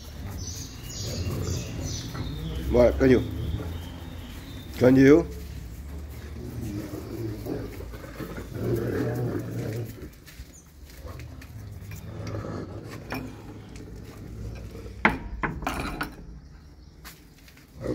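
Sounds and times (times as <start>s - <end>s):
dog growling low: 0.1s - 4.4s, 5.9s - 10.2s, 11.0s - 15.0s.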